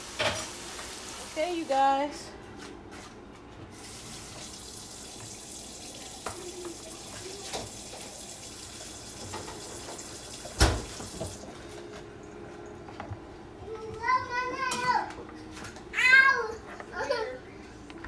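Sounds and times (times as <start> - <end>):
kitchen tap running: 0.0 - 1.4, 3.7 - 11.5.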